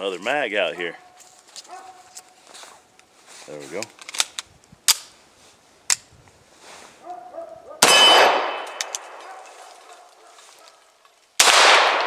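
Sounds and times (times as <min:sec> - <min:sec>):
pistol shot: 0:07.8 - 0:09.2, 0:11.4 - 0:12.0
pistol metallic click: 0:08.6 - 0:09.2.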